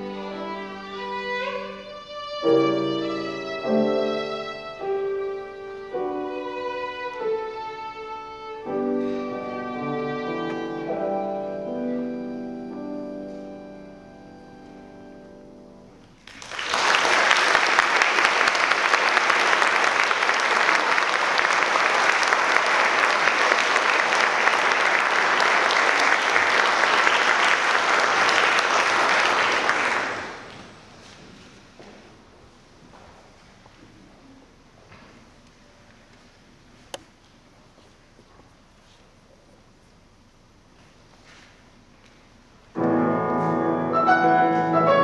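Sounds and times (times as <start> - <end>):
violin and piano music: 0.0 - 15.8, 42.8 - 45.0
audience applauding: 16.2 - 30.7.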